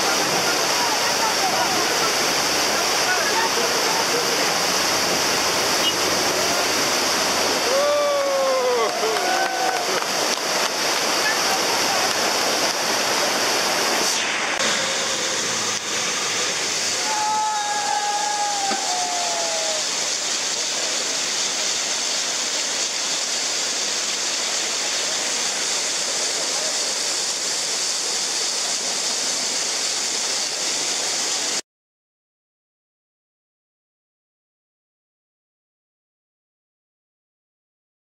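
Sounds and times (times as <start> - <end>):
rushing water torrent: 0.0 - 31.6
person shouting: 7.6 - 9.8, 17.0 - 19.9.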